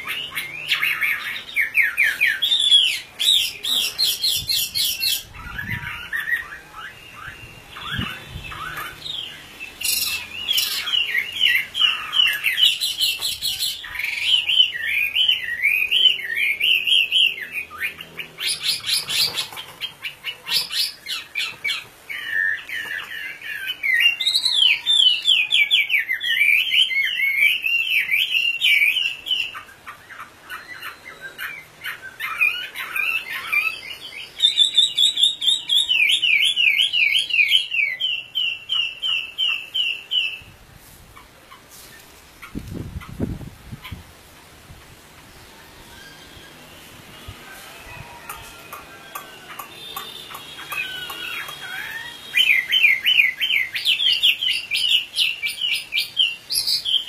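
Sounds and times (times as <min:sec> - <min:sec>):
bird singing whistled phrases: 0:49.4 - 0:57.0.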